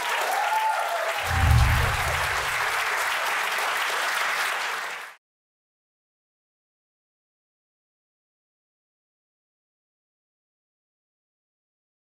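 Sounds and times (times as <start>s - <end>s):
audience applauding: 0.0s - 5.2s
deep low boom: 1.2s - 2.7s.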